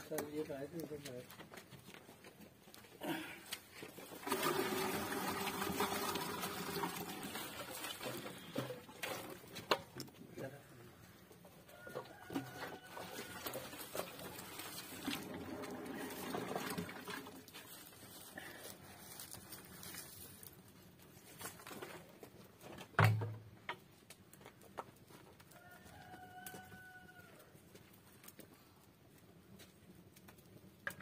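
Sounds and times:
rooster crowing: 0:11.7 - 0:13.7, 0:25.5 - 0:27.5.

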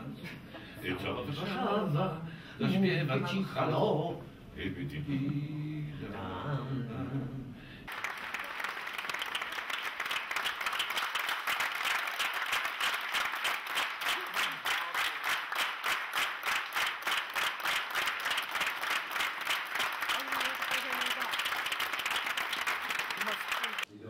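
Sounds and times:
audience clapping in unison: 0:07.9 - 0:23.9.

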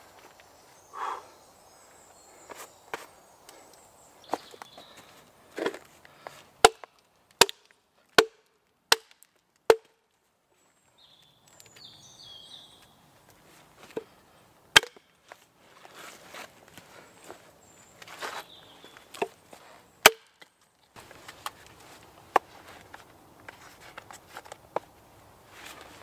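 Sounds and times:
hatchet chopping into log: 0:06.6 - 0:09.9, 0:14.8 - 0:15.1, 0:20.0 - 0:20.5.

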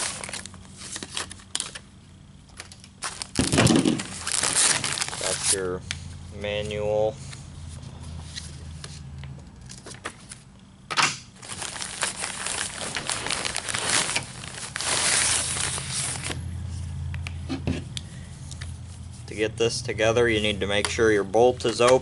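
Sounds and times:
papers and nylon case rustling: 0:00.0 - 0:01.8, 0:02.5 - 0:05.7, 0:11.4 - 0:16.4.

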